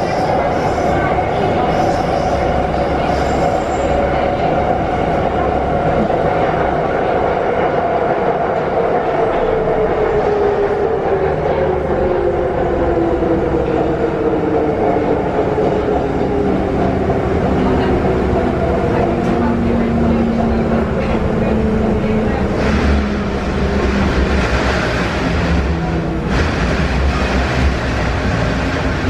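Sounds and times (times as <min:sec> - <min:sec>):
train wheels rumbling on rails: 0:00.0 - 0:29.0
train whine: 0:08.6 - 0:29.0.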